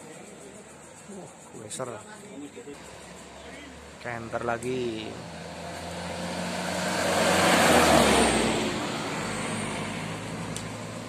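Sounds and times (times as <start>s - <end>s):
truck driving past: 2.8s - 11.0s.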